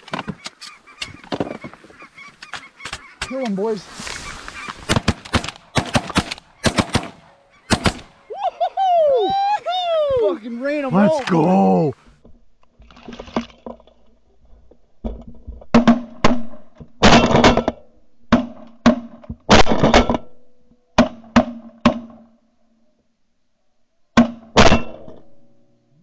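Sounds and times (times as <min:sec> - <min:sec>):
shotgun blasts: 0:04.8 - 0:08.1.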